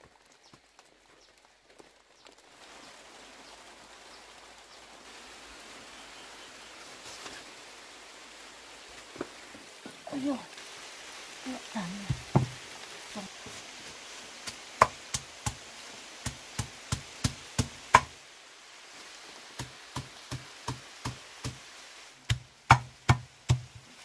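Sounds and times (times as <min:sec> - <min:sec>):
knife chopping on cutting board: 0:22.3 - 0:23.6.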